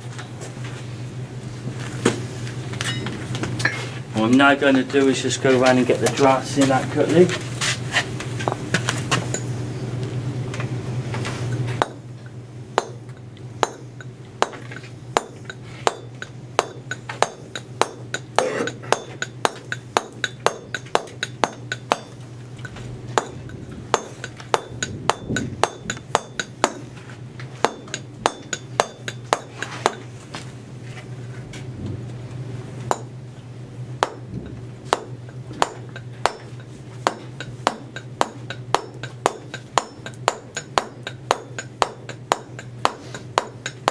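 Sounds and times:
low hum: 8.1s - 43.9s
chisel tapping stone: 13.6s - 13.8s, 14.4s - 26.8s, 27.6s - 30.0s, 34.9s - 43.9s.

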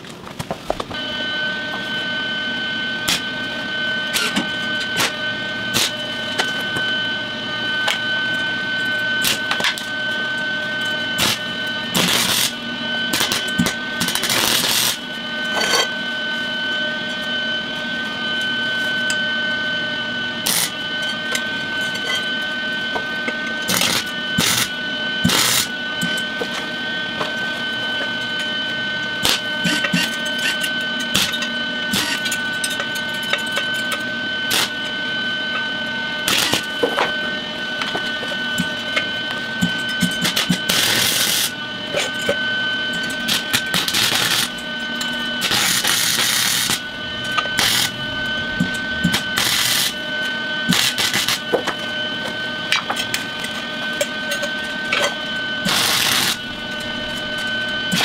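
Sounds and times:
welding machine whine: 0.0s - 58.0s
welding arc crackling and buzzing: 3.0s - 3.4s, 4.0s - 15.8s, 20.4s - 22.2s, 23.6s - 26.5s, 29.0s - 35.0s, 36.2s - 37.0s, 37.8s - 42.3s, 42.9s - 53.7s, 54.3s - 58.0s.

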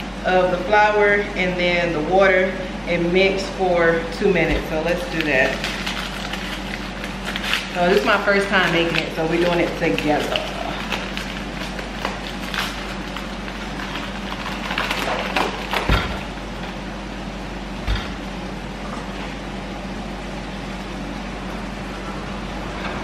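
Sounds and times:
steady low hum: 0.0s - 23.0s
paper bag tearing and crinkling: 5.1s - 15.9s.

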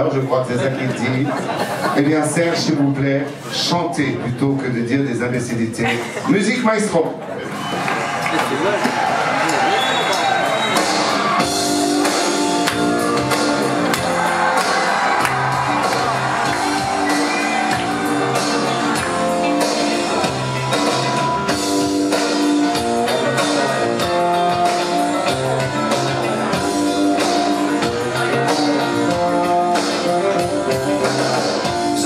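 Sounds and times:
instrumental music: 10.7s - 32.0s.

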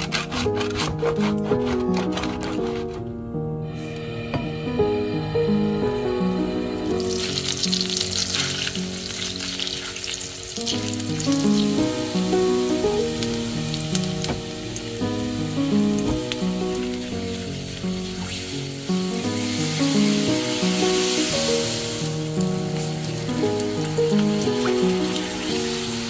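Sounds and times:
butter sizzling in a frying pan: 6.6s - 26.0s.

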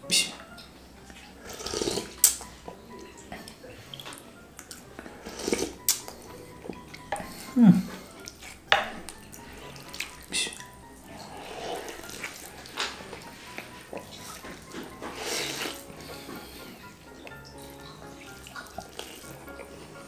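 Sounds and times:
slurping noodle soup: 1.1s - 2.5s, 3.3s - 20.0s.

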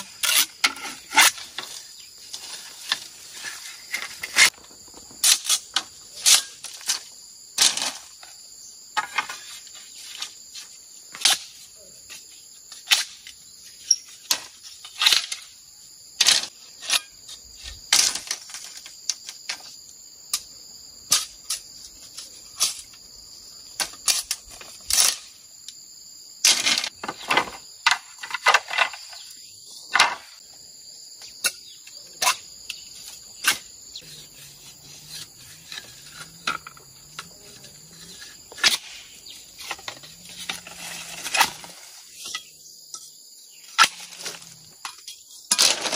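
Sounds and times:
high insect drone: 0.0s - 45.8s.

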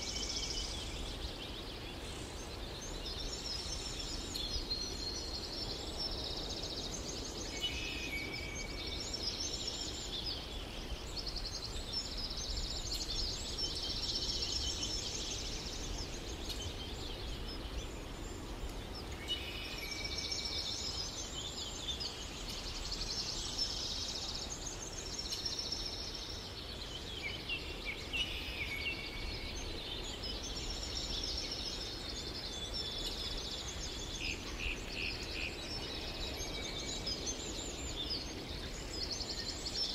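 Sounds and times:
birds twittering and trilling: 0.0s - 39.9s
steady low hiss: 0.0s - 39.9s.

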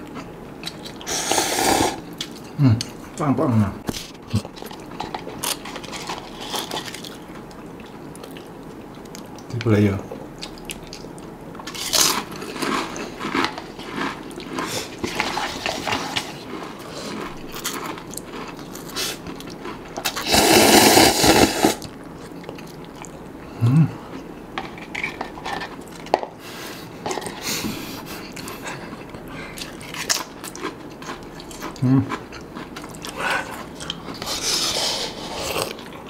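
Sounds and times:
noodle slurp: 1.0s - 2.0s, 20.0s - 21.9s
crisps crunched and chewed: 4.1s - 9.6s, 10.4s - 20.3s, 29.0s - 34.4s.

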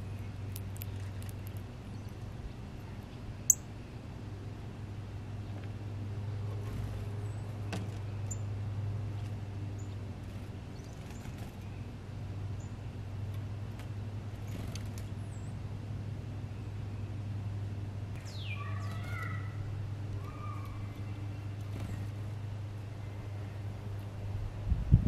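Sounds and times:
steady low hum: 0.0s - 25.0s
faint high bird chirps: 18.2s - 22.0s.

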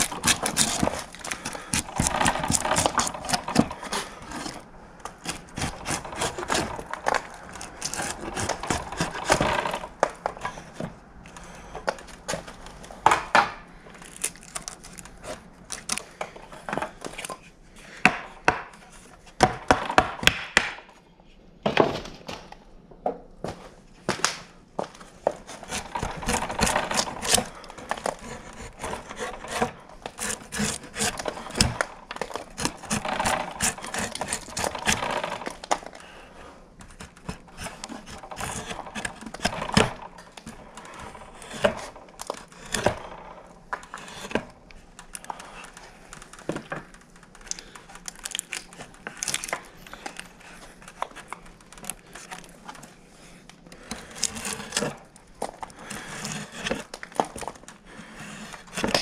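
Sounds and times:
draw knife scraping wood: 0.0s - 11.6s, 25.2s - 36.2s, 36.8s - 44.6s, 53.3s - 59.0s.

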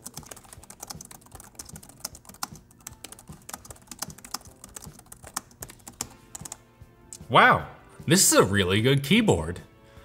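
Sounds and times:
laptop keyboard typing: 0.0s - 6.6s.

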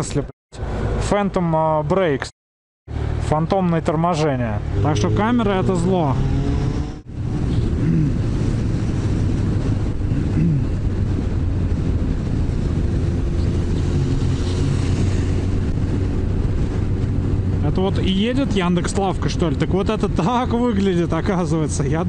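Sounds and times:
motorcycle engine humming: 2.9s - 17.6s
wind noise on microphone: 4.6s - 22.0s.

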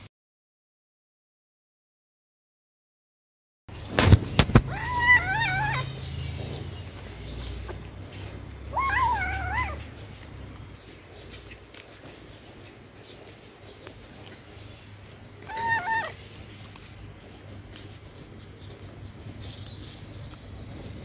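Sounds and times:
kitten yowling meows: 4.4s - 6.1s, 8.5s - 10.0s, 15.4s - 16.2s.

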